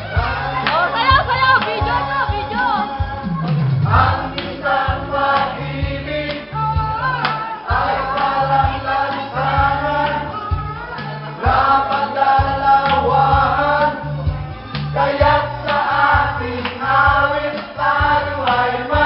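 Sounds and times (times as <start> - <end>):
dance music with singing: 0.0 - 19.0.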